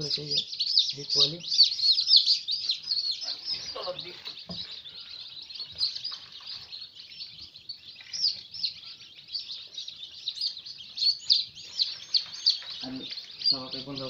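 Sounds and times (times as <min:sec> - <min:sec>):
chicks peeping: 0:00.0 - 0:14.0
egg trays knocking: 0:03.7 - 0:04.9, 0:11.7 - 0:14.0.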